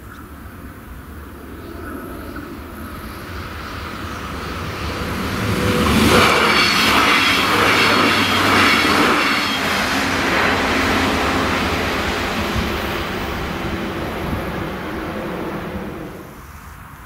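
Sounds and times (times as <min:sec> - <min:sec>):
train engine and wheel rumble: 0:00.0 - 0:17.0.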